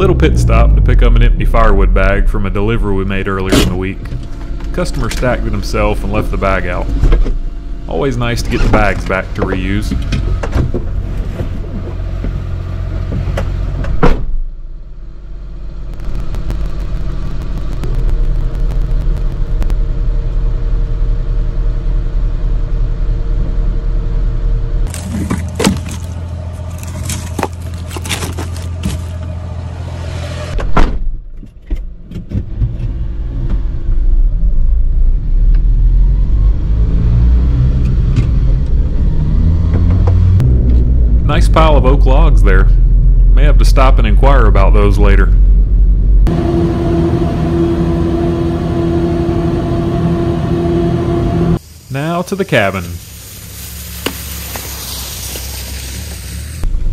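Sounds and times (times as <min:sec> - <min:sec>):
truck engine and road rumble: 0:00.0 - 0:56.9
hiss: 0:51.6 - 0:56.6.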